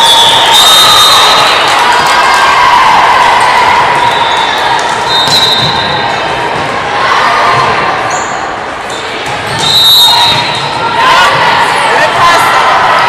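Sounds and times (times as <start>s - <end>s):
sneaker squeaks: 4.0s - 6.2s, 8.1s - 10.9s
volleyball hits: 4.2s - 8.0s, 9.1s - 11.7s.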